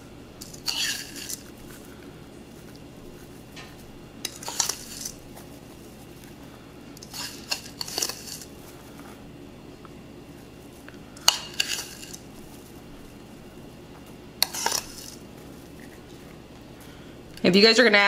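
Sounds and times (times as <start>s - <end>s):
metal spoon scraping ceramic bowl: 0.4s - 1.4s, 4.3s - 5.2s, 7.0s - 8.5s, 11.3s - 12.2s, 14.4s - 15.2s.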